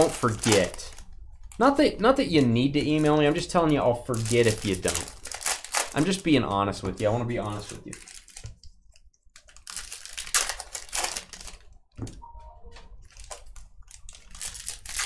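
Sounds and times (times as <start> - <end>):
foil wrappers crinkling: 0.0 - 11.9, 13.0 - 15.0.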